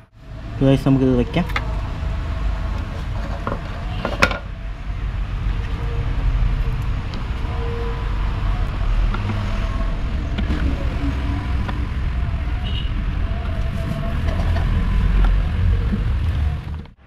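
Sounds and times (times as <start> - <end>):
steady low rumble: 4.5 - 17.0.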